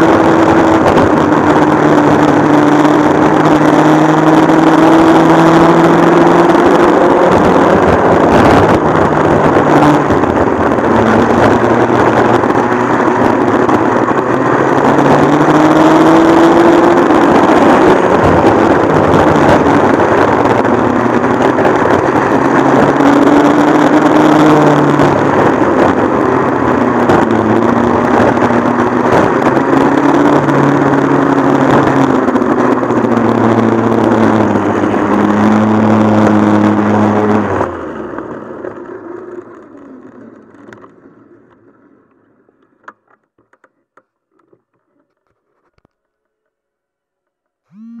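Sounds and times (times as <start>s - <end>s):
kart engine racing: 0.0s - 43.6s.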